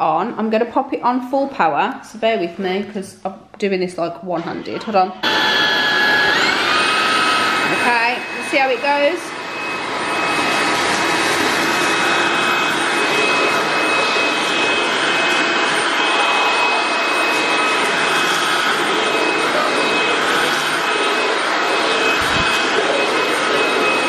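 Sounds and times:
vacuum cleaner whining: 4.6s - 24.0s.

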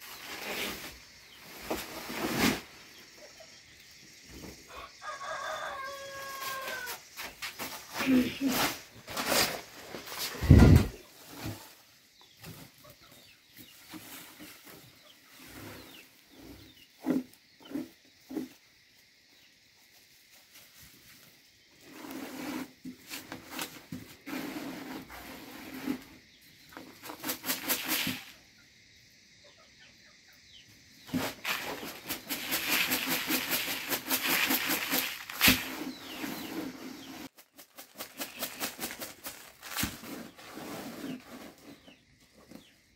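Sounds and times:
chickens clucking: 10.0s - 18.6s
grits rustling on winnowing tray: 26.8s - 28.4s, 31.1s - 42.5s.

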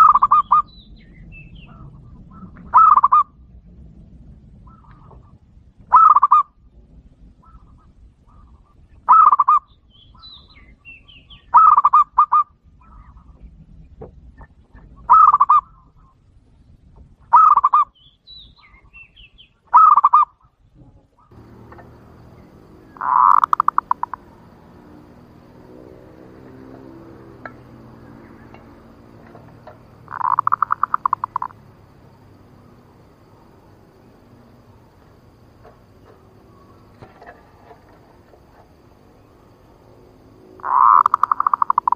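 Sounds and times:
dove cooing: 0.0s - 0.7s, 1.7s - 3.3s, 5.9s - 6.4s, 9.1s - 9.6s, 11.6s - 13.0s, 15.1s - 15.7s, 19.7s - 20.3s, 21.3s - 39.6s, 40.2s - 41.9s
rapid trilled bird calls: 0.0s - 3.3s, 4.7s - 6.5s, 7.4s - 13.4s, 14.8s - 16.2s, 17.3s - 20.5s, 21.2s - 41.9s.

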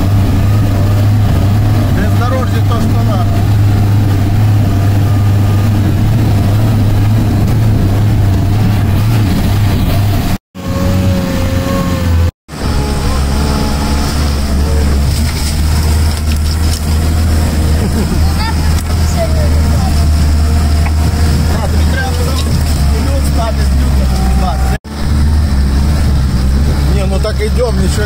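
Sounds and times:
off-road vehicle engine running: 0.0s - 28.0s.

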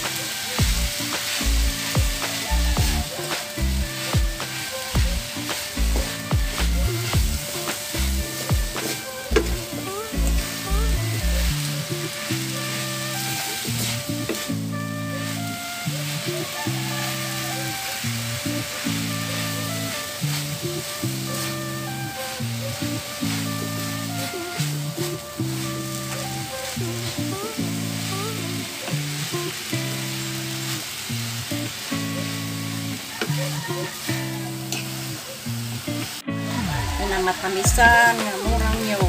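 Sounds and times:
background music with low beat: 0.0s - 16.9s, 36.2s - 39.0s
food sizzling in a frying pan: 0.0s - 39.0s
wooden spatula scraping a pan: 0.1s - 15.6s, 16.2s - 28.8s.

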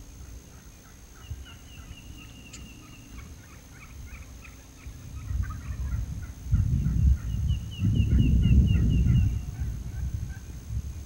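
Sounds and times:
turkeys gobbling: 0.5s - 7.4s.

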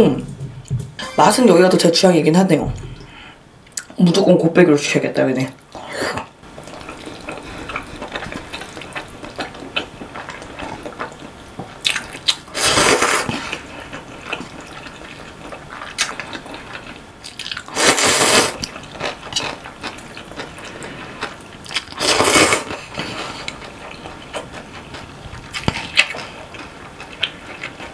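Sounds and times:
wet chewing: 6.6s - 27.9s
noodles being slurped: 12.5s - 15.2s, 17.4s - 19.6s, 20.4s - 24.1s.

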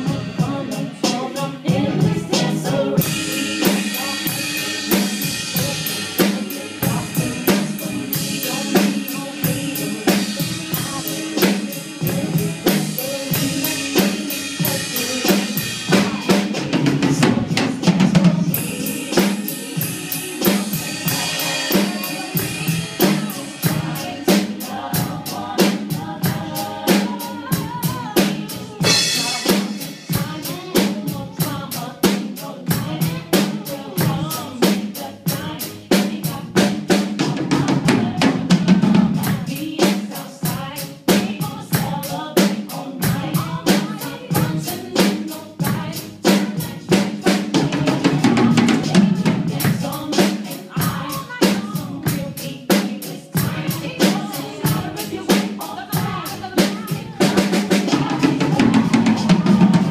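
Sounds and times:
drum kit playing a steady beat: 0.0s - 59.9s
recorded backing music: 0.0s - 59.9s
cymbals: 2.4s - 31.1s.

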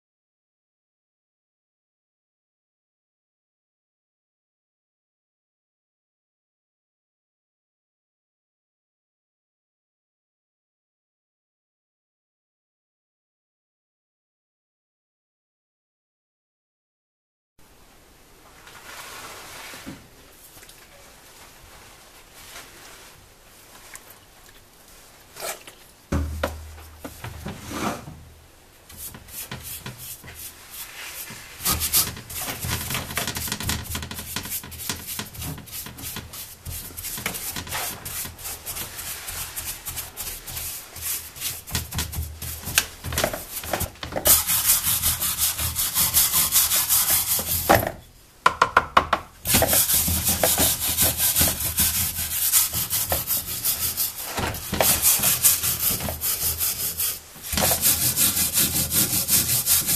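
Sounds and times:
brush scrubbing metal: 28.9s - 47.7s, 49.4s - 59.9s.

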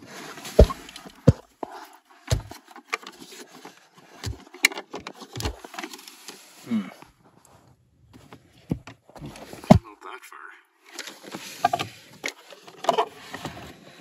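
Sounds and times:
knocks and thumps: 0.6s - 1.6s, 2.3s - 2.6s.

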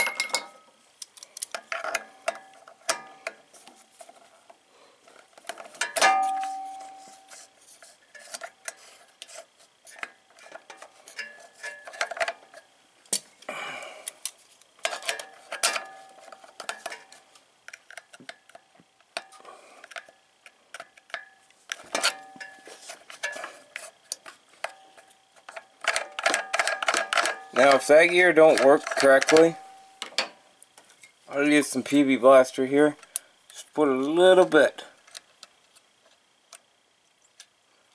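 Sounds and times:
pliers clinking on metal parts: 0.0s - 0.6s.

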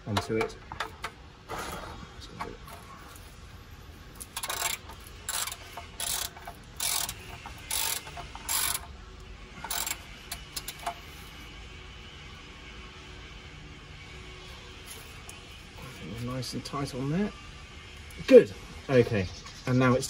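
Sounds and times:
ratchet wrench clicking: 4.2s - 8.9s, 9.6s - 11.3s.

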